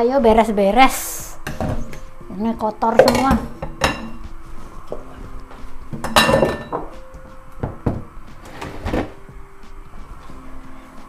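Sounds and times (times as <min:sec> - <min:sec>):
dishes and utensils clattering: 0:01.4 - 0:02.1, 0:02.8 - 0:05.1, 0:05.9 - 0:07.0.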